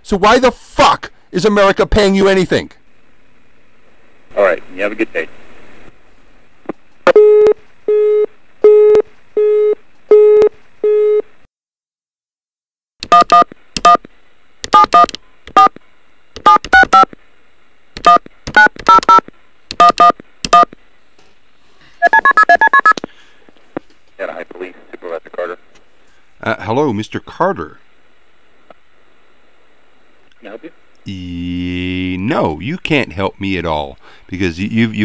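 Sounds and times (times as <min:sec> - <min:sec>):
telephone busy tone beeps: 0:07.1 - 0:11.2, 0:13.1 - 0:14.0, 0:18.1 - 0:19.2, 0:19.8 - 0:20.7, 0:22.0 - 0:23.0
touch-tone key beeps: 0:22.0 - 0:23.0.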